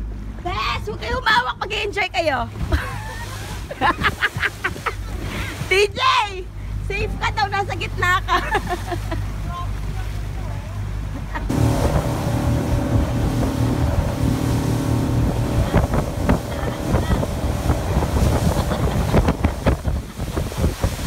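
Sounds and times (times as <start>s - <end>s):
outboard motor running: 8.6s - 21.0s
rushing water: 11.5s - 21.0s
wind buffeting microphone: 11.5s - 21.0s.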